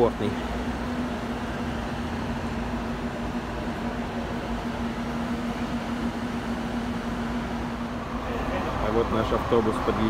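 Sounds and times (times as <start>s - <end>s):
coach engine idling: 0.0s - 10.0s.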